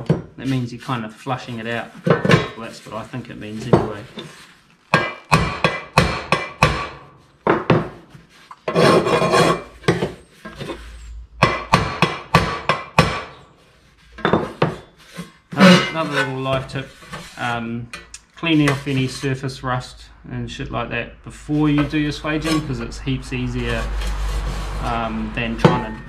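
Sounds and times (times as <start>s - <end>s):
file scraping across metal: 0.0s - 5.9s, 8.3s - 17.6s, 18.4s - 19.5s, 21.5s - 26.0s
hammer tapping sheet metal: 5.0s - 7.0s, 11.4s - 13.4s, 25.5s - 26.0s.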